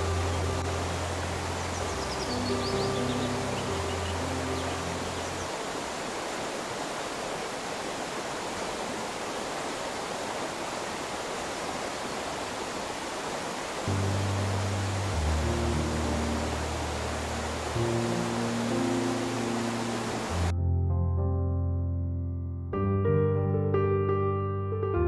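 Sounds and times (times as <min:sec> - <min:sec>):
soft background music: 0:00.0 - 0:05.6, 0:13.9 - 0:25.0
river water flowing: 0:00.0 - 0:20.5.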